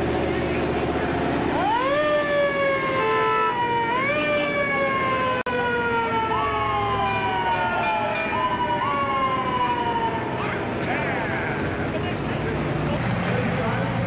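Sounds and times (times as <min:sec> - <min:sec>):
low vehicle rumble: 0:00.0 - 0:14.0
emergency vehicle siren: 0:01.4 - 0:12.2.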